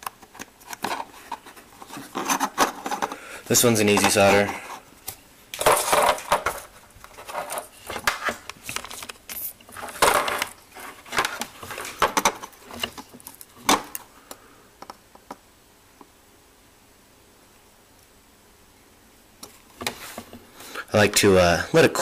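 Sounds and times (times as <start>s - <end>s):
circuit board and tools rattling: 0.0s - 3.2s, 5.6s - 14.0s.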